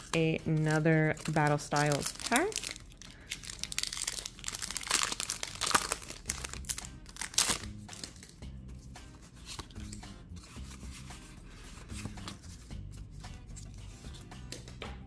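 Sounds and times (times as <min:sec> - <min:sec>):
cards rustling: 0:00.0 - 0:08.4, 0:09.1 - 0:14.7
quiet background music: 0:00.0 - 0:15.0
foil wrapper crinkling and tearing: 0:00.6 - 0:08.4.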